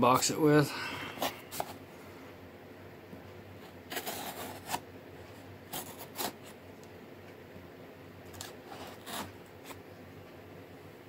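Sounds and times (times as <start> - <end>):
knife cutting tape and cardboard: 5.7 - 6.5, 8.3 - 9.8.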